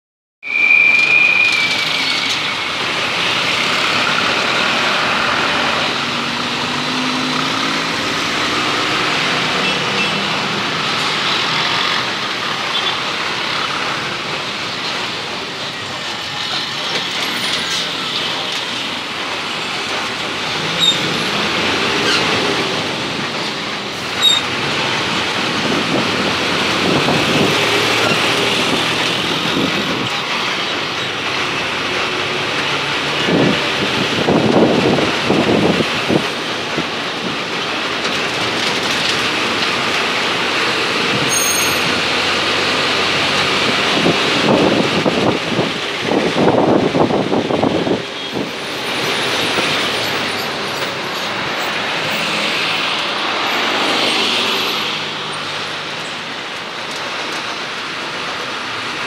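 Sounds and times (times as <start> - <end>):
high squeal: 0.4 - 4.1, 41.2 - 42.1
road traffic engines passing: 0.4 - 59.0.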